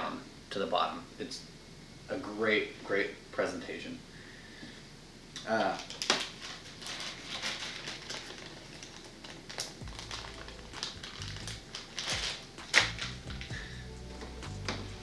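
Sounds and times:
plastic package crinkling: 5.6 - 13.7.

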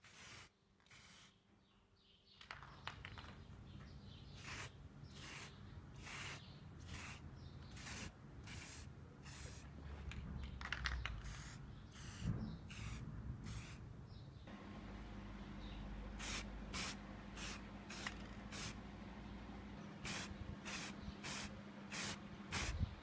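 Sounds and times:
spray can hissing: 0.0 - 1.4, 4.4 - 7.2, 7.8 - 9.6, 11.2 - 13.8, 16.2 - 18.8, 20.1 - 22.8.

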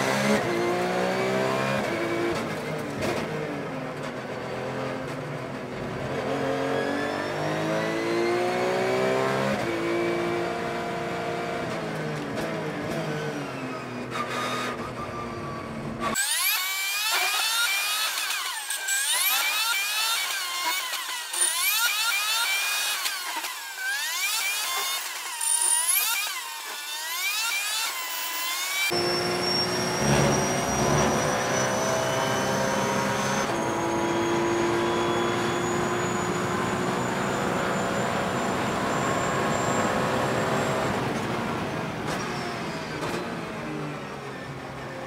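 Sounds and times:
racing engine upshifting: 28.9 - 44.9.

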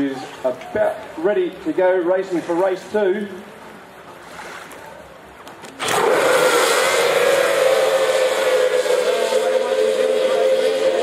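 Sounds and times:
outboard engines at full throttle: 5.8 - 11.0.

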